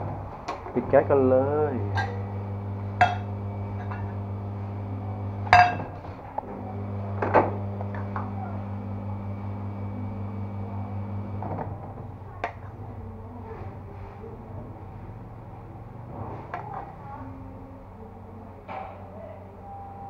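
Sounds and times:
steady low hum: 0:00.0 - 0:13.5
cooking pan and utensils clinking: 0:01.9 - 0:02.2, 0:05.5 - 0:06.0.

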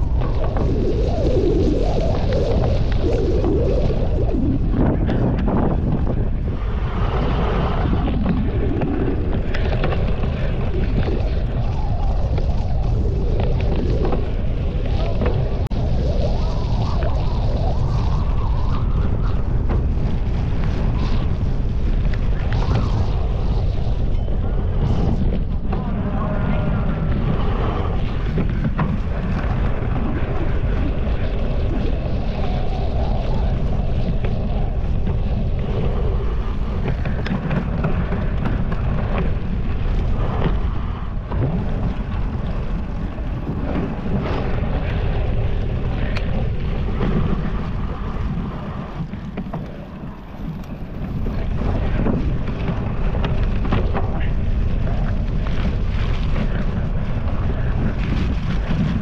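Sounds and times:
wind buffeting microphone: 0:00.0 - 0:59.0.

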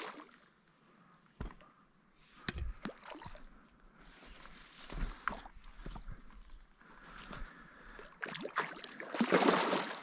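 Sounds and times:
water splashing and sloshing: 0:00.0 - 0:00.6, 0:02.4 - 0:06.4, 0:07.4 - 0:10.0.

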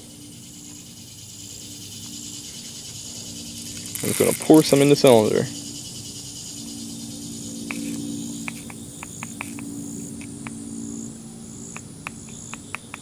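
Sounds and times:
crickets chirping: 0:00.0 - 0:13.0
low steady hum: 0:00.0 - 0:13.0
pellets trickling through funnel: 0:03.8 - 0:05.1.

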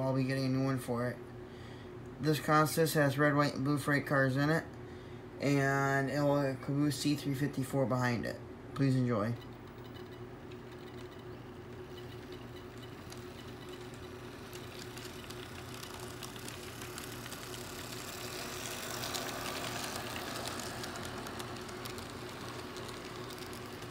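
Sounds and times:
wheels clicking on track: 0:11.8 - 0:23.9
model train humming: 0:12.0 - 0:23.9.

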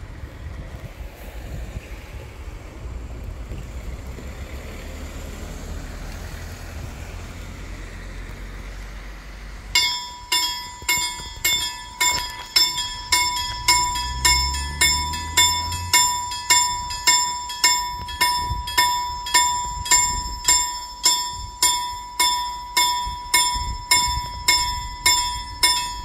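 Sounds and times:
level crossing warning bell: 0:09.7 - 0:26.0.

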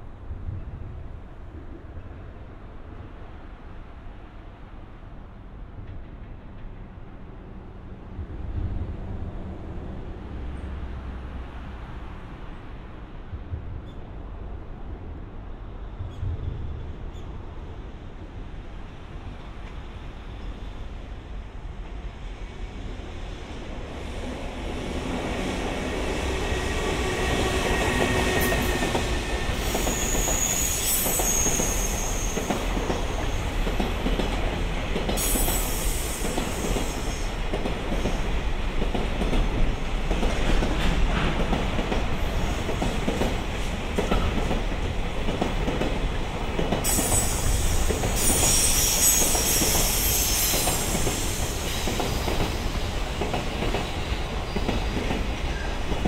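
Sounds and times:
train wheels clicking over rail joints: 0:27.1 - 0:56.0
high-pitched wheel squeal: 0:29.6 - 0:32.5.

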